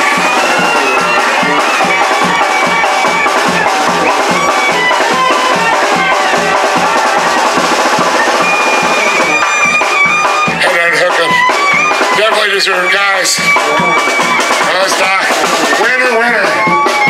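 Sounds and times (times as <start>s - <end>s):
background music with steady beat: 0.0s - 17.0s.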